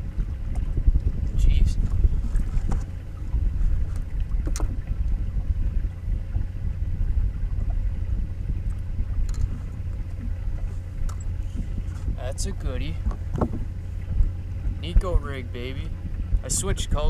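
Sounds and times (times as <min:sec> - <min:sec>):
water lapping around boat: 0:00.0 - 0:17.0
wind rumble: 0:00.0 - 0:17.0.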